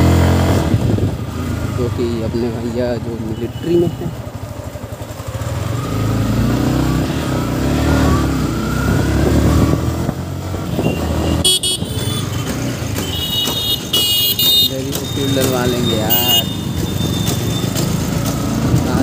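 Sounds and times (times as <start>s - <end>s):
motorcycle engine revving: 0.0s - 19.0s
vehicle horn beeping: 10.7s - 17.8s.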